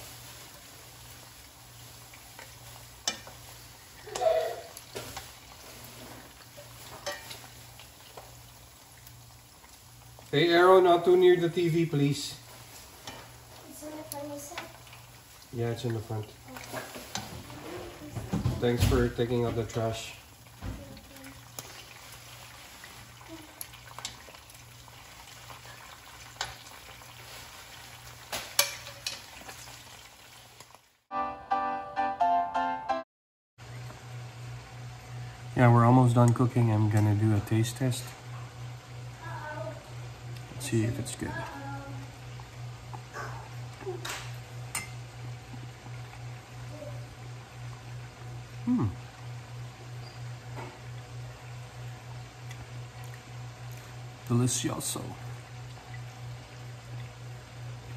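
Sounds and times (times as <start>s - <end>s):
frying sizzle: 0.0s - 31.1s, 33.6s - 57.9s
metal tongs clinking on pan: 6.8s - 7.4s, 28.5s - 29.3s
metal fork clinking on pan: 7.0s - 7.4s
music: 31.1s - 33.0s.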